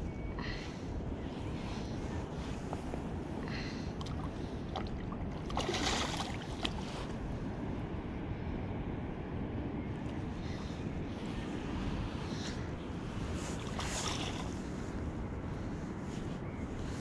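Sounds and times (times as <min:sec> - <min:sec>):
wind noise on microphone: 0:00.0 - 0:17.0
rushing river water: 0:04.0 - 0:07.2.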